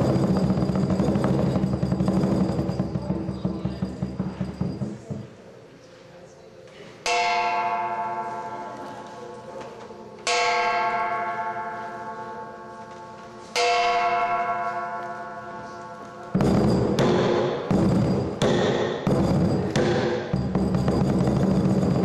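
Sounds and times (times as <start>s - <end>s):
gong ringing: 0.0s - 5.0s, 13.5s - 22.0s
drum and cymbals hits: 0.0s - 5.4s, 16.3s - 22.0s.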